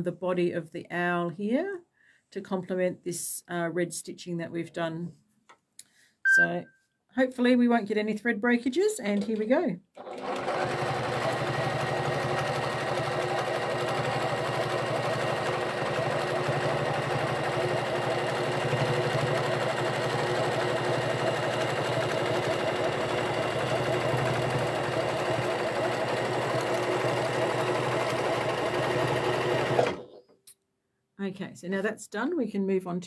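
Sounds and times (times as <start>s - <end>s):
sewing machine running: 10.0s - 30.2s.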